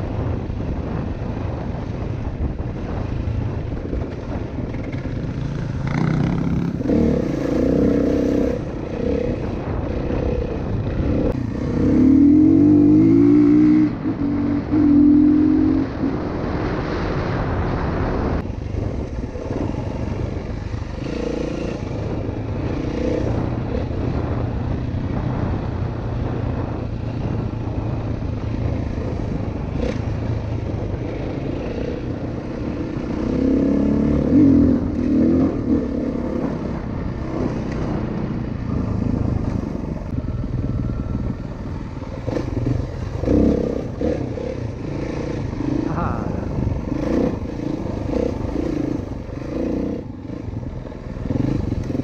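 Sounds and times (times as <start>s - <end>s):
dirt bike engine revving: 4.8s - 17.2s, 31.1s - 52.0s.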